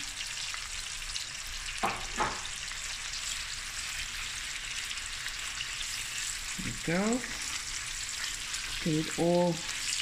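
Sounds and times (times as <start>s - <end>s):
prawns sizzling in hot oil: 0.0s - 10.0s.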